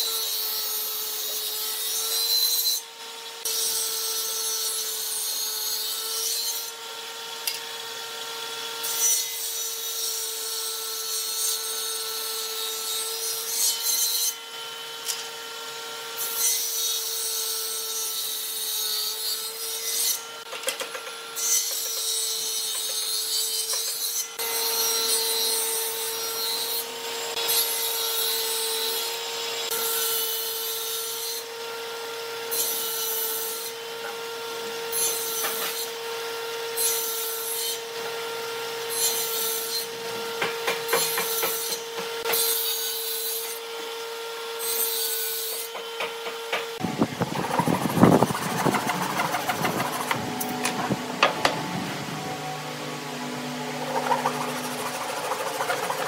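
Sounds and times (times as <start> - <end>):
saw blade cutting wood: 8.8 - 31.5, 32.5 - 36.0, 38.8 - 56.0
table saw humming: 39.9 - 56.0.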